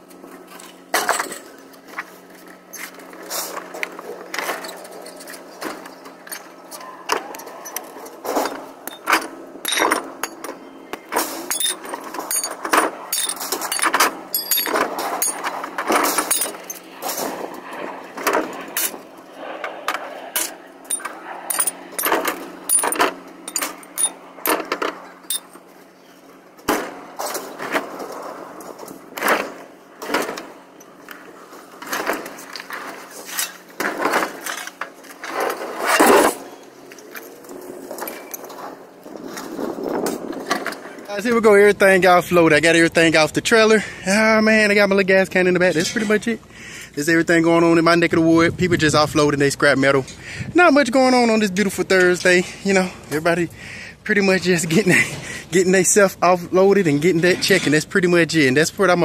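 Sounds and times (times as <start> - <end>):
steady low hum: 0.0 - 59.0
scrap metal clanking and banging: 7.7 - 17.6, 20.4 - 25.6.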